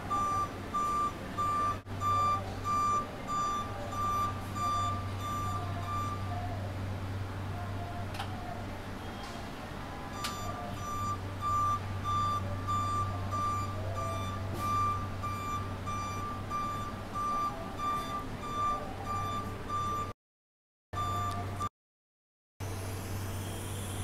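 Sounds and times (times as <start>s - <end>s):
high warning alarm beeps: 0.1s - 6.4s, 10.1s - 20.2s, 21.0s - 21.7s.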